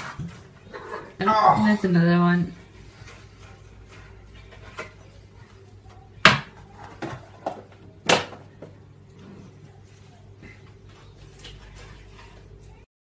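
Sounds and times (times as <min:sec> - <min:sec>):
knocks on kitchen counter: 0:06.2 - 0:08.4.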